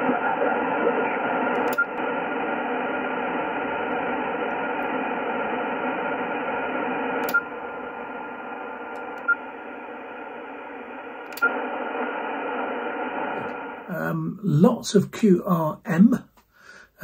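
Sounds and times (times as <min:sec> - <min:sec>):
radio static hiss: 0:00.0 - 0:16.3
radio click-beep: 0:00.3 - 0:02.1, 0:07.2 - 0:07.6, 0:08.9 - 0:09.5, 0:11.2 - 0:11.6.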